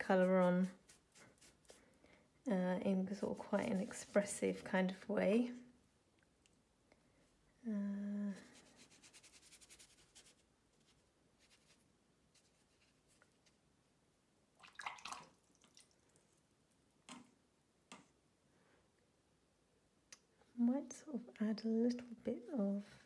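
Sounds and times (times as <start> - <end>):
soft brushing and taps: 3.0 - 5.0.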